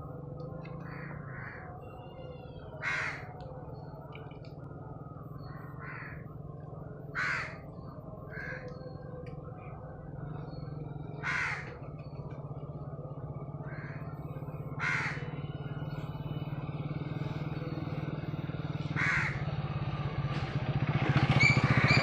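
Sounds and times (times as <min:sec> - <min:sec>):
crows cawing: 0:00.7 - 0:03.6, 0:05.4 - 0:09.0, 0:11.1 - 0:11.9, 0:13.6 - 0:15.4, 0:18.8 - 0:19.6.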